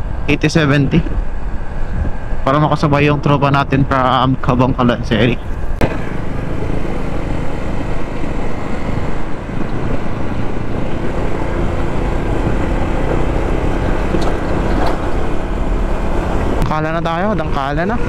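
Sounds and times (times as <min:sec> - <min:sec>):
wind rush on microphone: 0:00.0 - 0:16.8
scooter engine running: 0:05.4 - 0:18.0.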